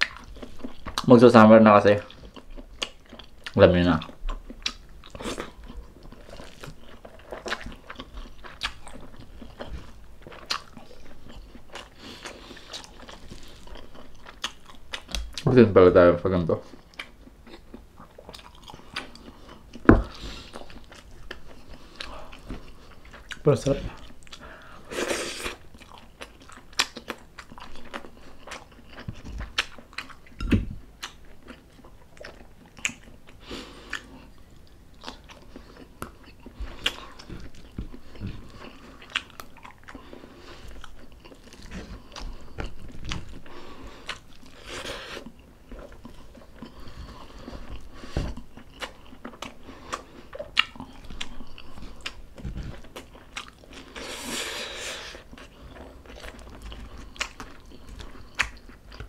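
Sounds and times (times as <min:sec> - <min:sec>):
person chewing and biting food: 0:02.0 - 0:15.5, 0:16.7 - 0:59.0
wet mouth clicks and crunches: 0:55.2 - 0:59.0.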